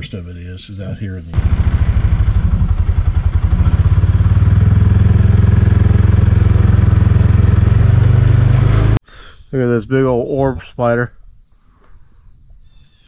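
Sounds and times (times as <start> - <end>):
vehicle engine rumbling: 0.0 - 9.0.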